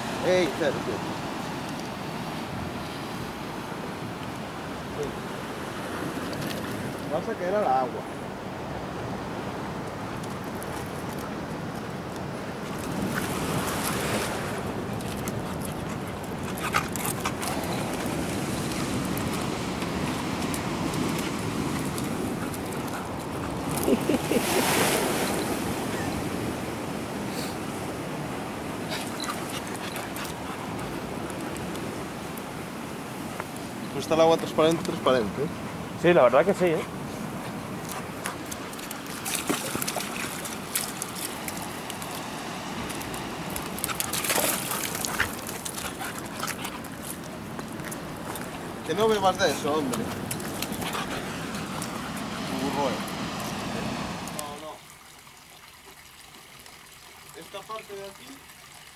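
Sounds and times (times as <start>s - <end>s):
surf washing against rocks: 0.0s - 54.9s
small clicks and splashes: 6.2s - 7.1s, 14.9s - 18.1s, 37.8s - 42.2s, 42.8s - 48.6s, 49.7s - 51.9s.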